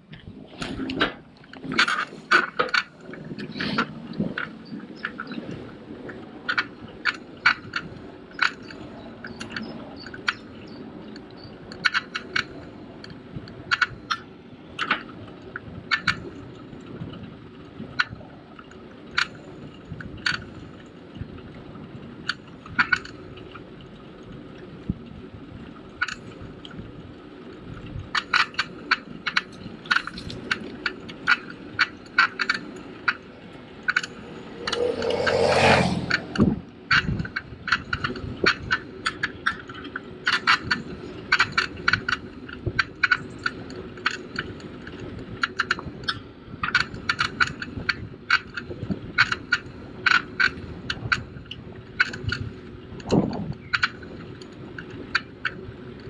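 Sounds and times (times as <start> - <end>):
tyres rolling rumble: 0.0 - 48.1
bike rattling with metallic clicks: 0.0 - 56.0
rushing swell: 33.6 - 36.8.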